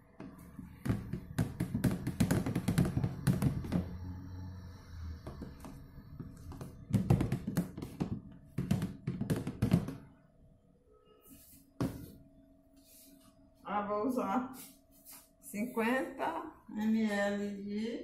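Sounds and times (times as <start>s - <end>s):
plastic spoon tapping tub: 6.4s - 10.1s.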